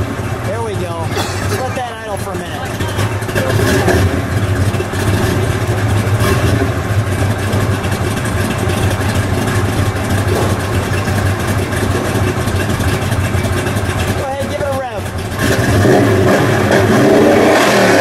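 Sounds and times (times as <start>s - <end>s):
v eight engine idling: 0.0s - 18.0s.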